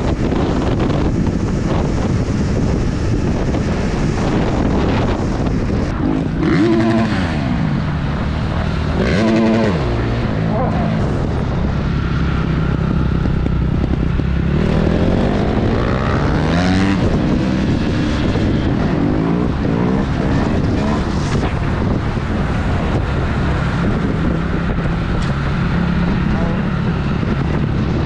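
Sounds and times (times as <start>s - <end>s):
wind rushing over microphone: 0.0s - 28.0s
dirt bike engine revving: 4.0s - 12.8s, 13.8s - 22.0s.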